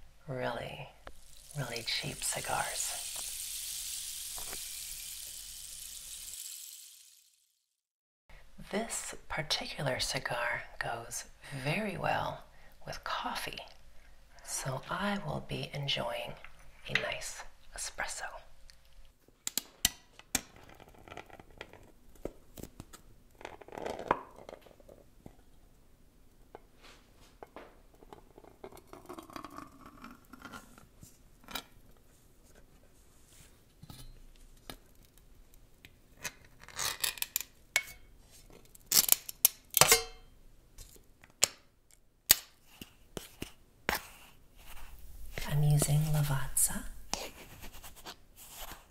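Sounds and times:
spoon prying metal tin lid: 39.8 - 40.2
spoon scraping ground coffee: 42.7 - 46.5.

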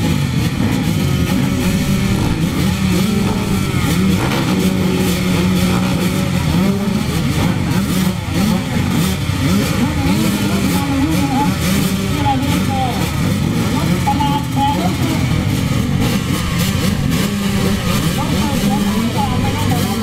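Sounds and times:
motorbikes idling and revving: 0.0 - 20.0.

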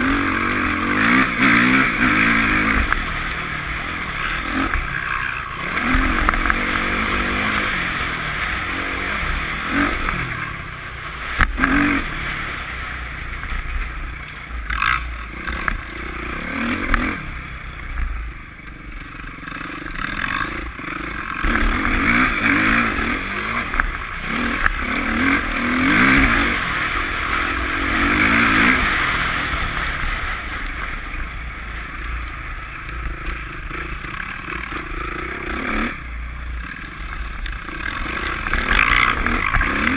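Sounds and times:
motorbike engine revving: 0.0 - 39.9.

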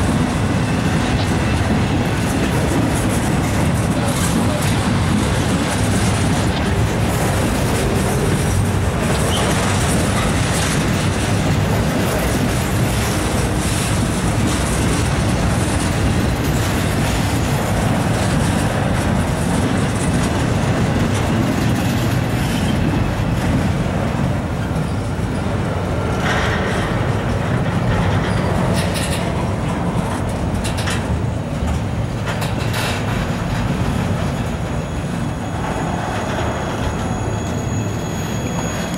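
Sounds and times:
freight train rumble: 0.0 - 38.9
wheel clatter on rails: 0.0 - 38.9.

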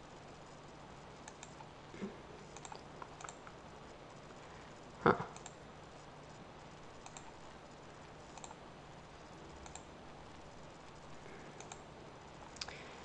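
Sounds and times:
low steady hum: 0.0 - 13.0
computer mouse clicks: 1.2 - 1.7, 2.5 - 3.6, 5.3 - 5.6, 7.0 - 7.4, 8.3 - 8.6, 9.6 - 9.9, 11.6 - 12.8.

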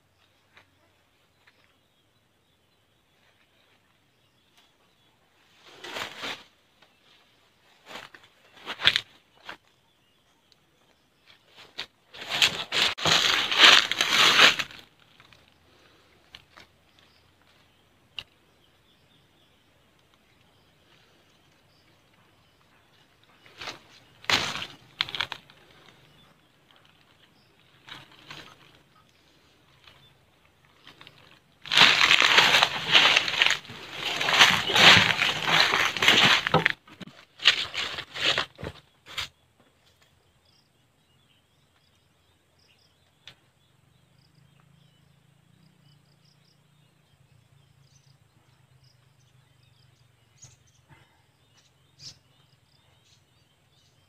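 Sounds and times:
close rustling and crackling: 11.4 - 18.4, 19.9 - 39.3.

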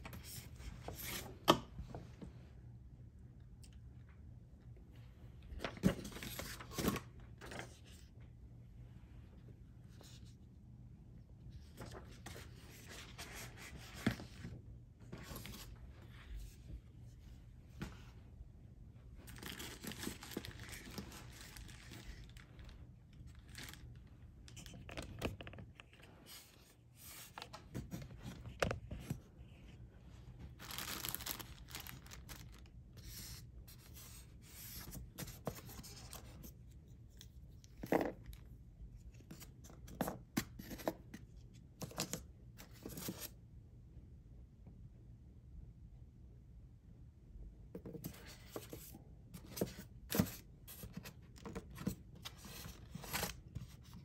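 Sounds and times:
packaging rustling and crinkling: 19.2 - 25.6, 30.4 - 33.4.

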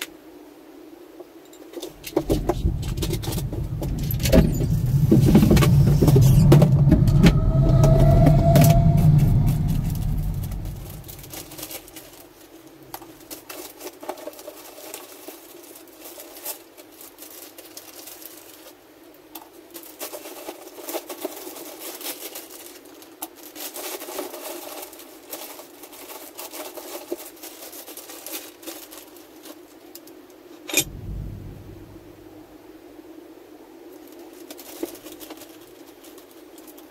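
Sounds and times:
steady low hum: 1.8 - 12.2, 30.7 - 33.4
plastic bag crinkling: 1.8 - 30.2, 34.0 - 36.9
low rumble: 2.0 - 12.0, 30.7 - 32.6.

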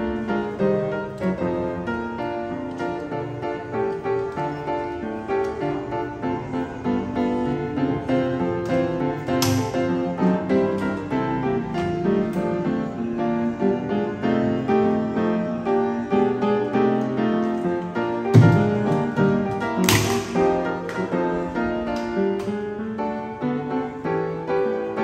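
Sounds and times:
piano background music: 0.0 - 25.0
thump: 18.3 - 18.9.

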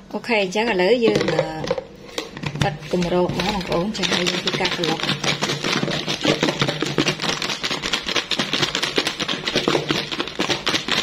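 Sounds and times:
fries rattling in plastic container: 2.6 - 11.0.

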